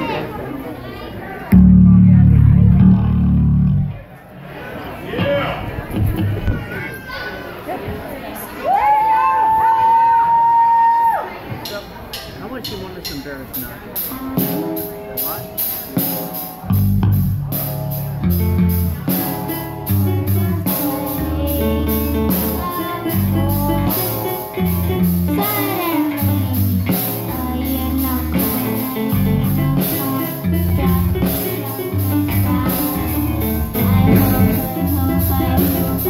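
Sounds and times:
electric bass: 1.5s - 4.1s, 14.3s - 36.0s
drum kit cymbal beat: 11.7s - 36.0s
keyboard: 11.7s - 36.0s
person singing: 19.2s - 36.0s.

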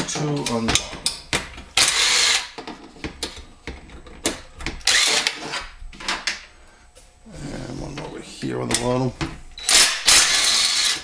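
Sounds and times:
cordless power driver running: 4.8s - 5.6s, 9.6s - 11.0s.

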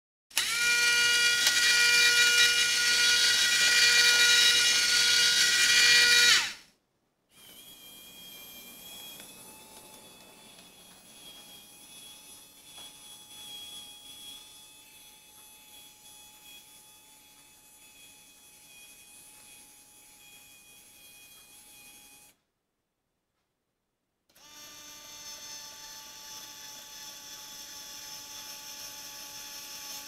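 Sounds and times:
quiet motor whine: 7.4s - 13.6s.

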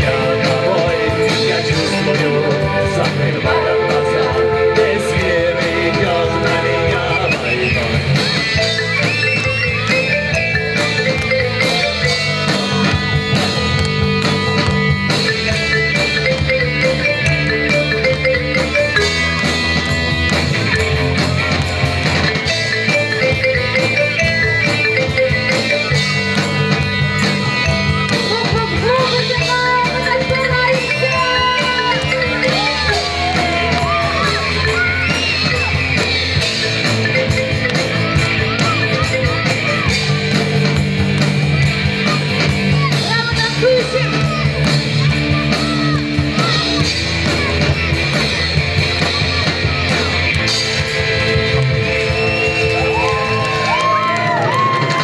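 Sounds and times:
bending lead guitar line: 0.0s - 55.0s
rock band playing live: 0.0s - 55.0s.

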